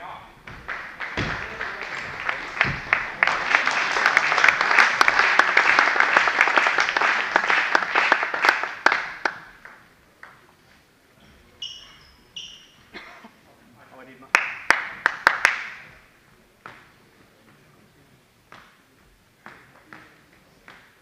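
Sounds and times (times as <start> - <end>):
dull thuds: 0.4 - 3.1
spectators applauding: 0.4 - 9.8, 14.3 - 15.9.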